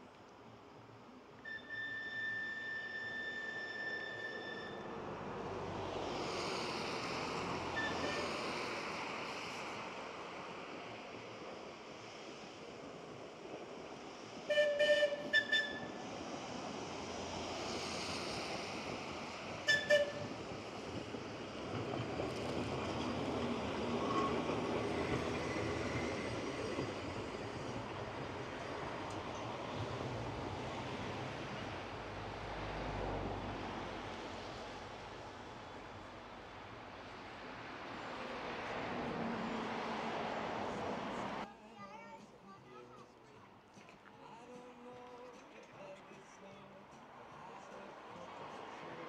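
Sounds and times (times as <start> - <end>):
wheels rattling on rail: 1.4 - 31.9
tram horn: 7.8 - 8.4, 14.5 - 16.0, 19.6 - 20.4.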